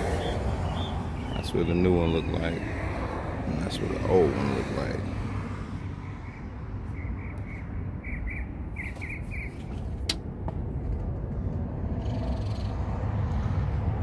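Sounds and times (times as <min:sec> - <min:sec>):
steady low rumble: 0:05.0 - 0:14.0.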